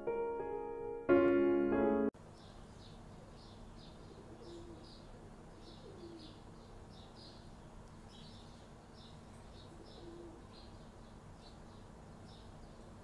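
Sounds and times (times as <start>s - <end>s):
small birds chirping: 2.2s - 13.0s
dove cooing: 4.1s - 5.0s, 5.8s - 6.4s, 9.8s - 10.5s.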